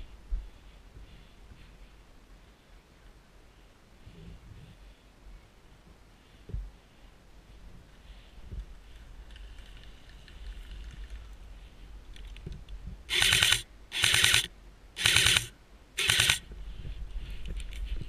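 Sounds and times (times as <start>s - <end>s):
airsoft rifle full-auto bursts: 13.1s - 16.5s.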